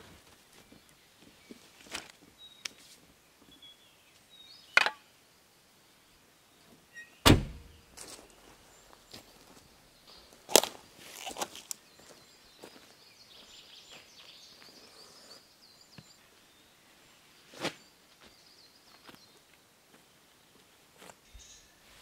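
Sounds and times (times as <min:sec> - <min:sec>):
faint high chirping: 0:06.6 - 0:09.0, 0:11.8 - 0:16.8, 0:21.2 - 0:22.0.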